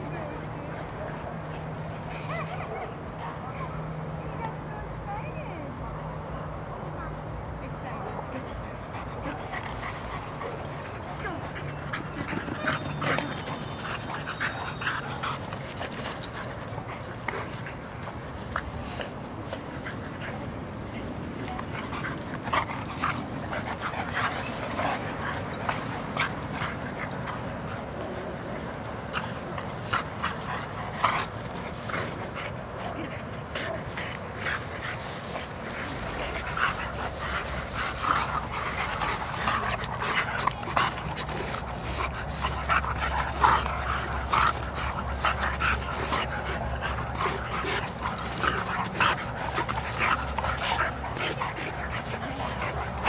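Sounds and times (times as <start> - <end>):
dogs yipping and whimpering: 9.0 - 18.2, 35.7 - 53.0.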